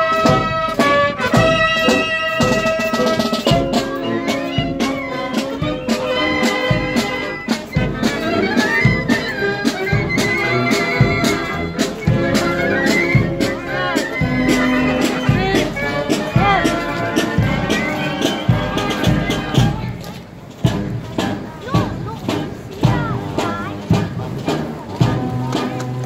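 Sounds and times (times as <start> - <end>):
marching band playing a march: 0.0 - 26.0.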